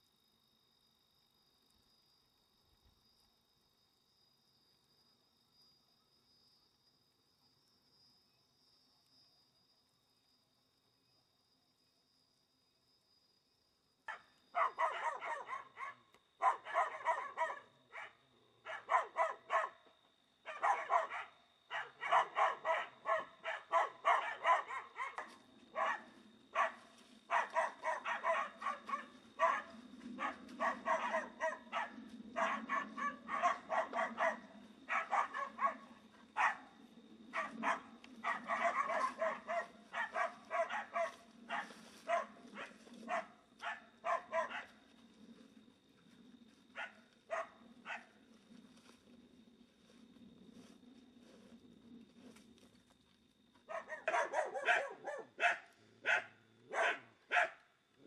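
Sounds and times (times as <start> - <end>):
dog barking: 14.1 - 19.9, 20.5 - 44.8, 46.8 - 48.1, 53.7 - 57.6.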